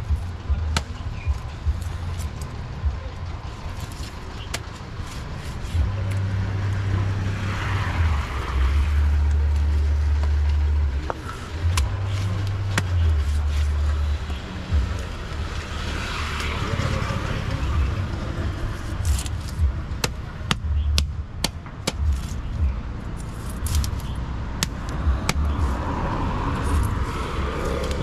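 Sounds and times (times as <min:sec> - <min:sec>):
low rumble: 0:05.8 - 0:20.0.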